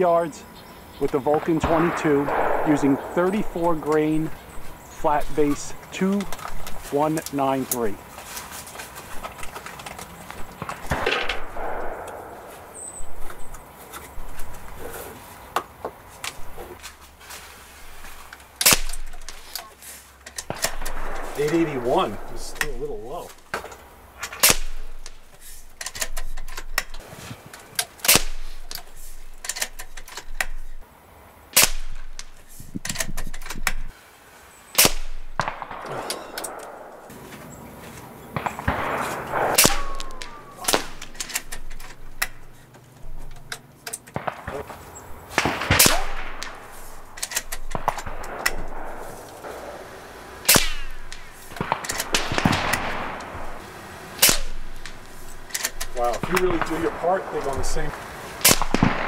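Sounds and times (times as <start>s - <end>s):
air rifle shots: 1.1s - 7.9s, 10.3s - 13.5s, 18.6s - 19.6s, 20.4s - 27.1s, 27.9s - 30.8s, 31.5s - 33.9s, 34.8s - 37.2s, 38.3s - 42.6s, 43.4s - 59.0s.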